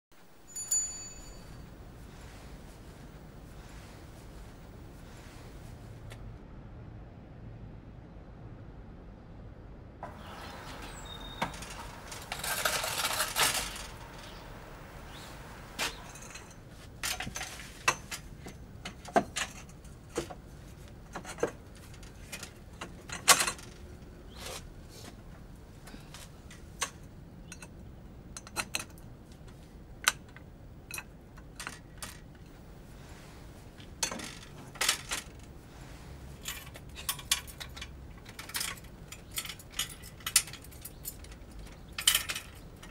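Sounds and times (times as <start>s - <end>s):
bicycle rattling: 10.0s - 20.1s.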